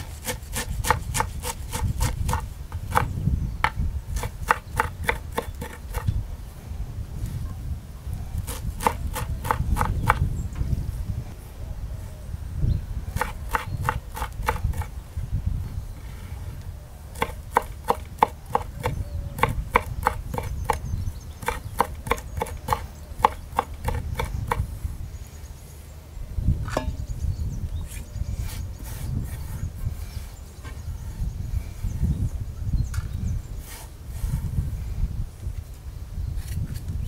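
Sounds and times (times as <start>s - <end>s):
knife chopping herbs in a bowl: 0.0s - 6.1s, 8.5s - 10.2s, 13.2s - 14.9s, 17.2s - 20.8s, 21.4s - 24.6s.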